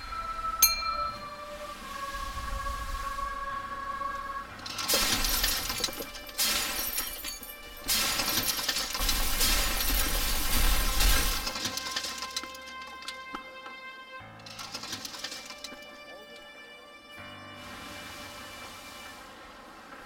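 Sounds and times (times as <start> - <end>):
soft music: 0.0 - 20.0
crashing and grinding ice: 4.6 - 13.4.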